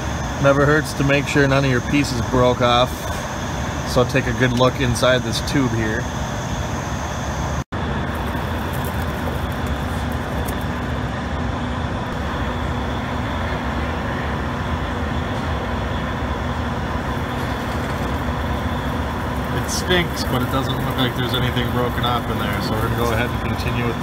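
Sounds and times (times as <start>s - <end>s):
faint hum: 0.0s - 24.0s.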